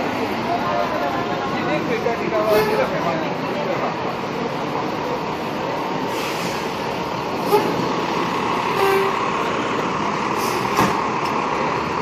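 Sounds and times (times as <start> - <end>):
fire engine pulling away: 0.0 - 12.0
street traffic noise: 0.0 - 12.0
short horn toots: 8.8 - 9.2.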